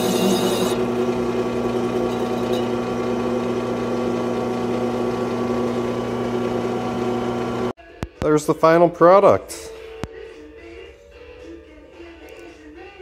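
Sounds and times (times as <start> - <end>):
metal lathe motor humming: 0.0 - 7.7.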